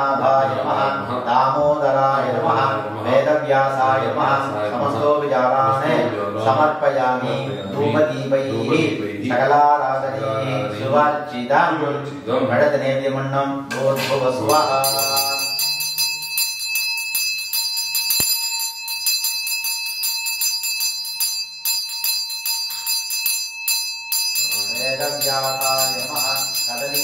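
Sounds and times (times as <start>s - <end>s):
brass hand bell ringing: 14.0s - 27.0s.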